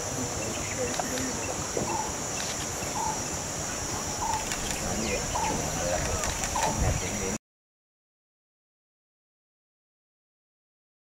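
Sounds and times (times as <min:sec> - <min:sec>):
high-pitched insect drone: 0:00.0 - 0:07.3.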